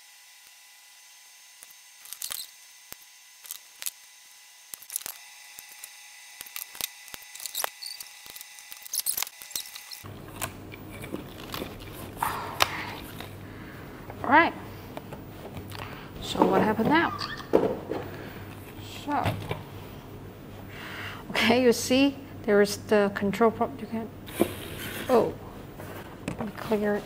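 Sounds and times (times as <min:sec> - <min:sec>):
low steady hum: 0:08.3 - 0:27.0.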